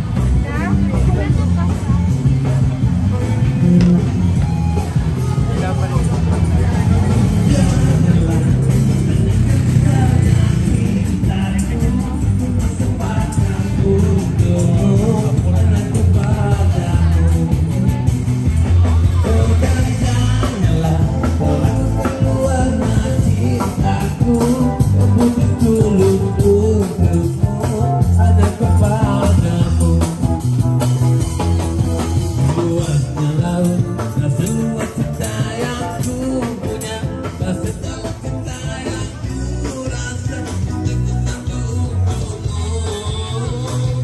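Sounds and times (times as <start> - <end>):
guitar: 0.0 - 44.0
strong bass line: 0.0 - 44.0
person singing: 6.6 - 44.0.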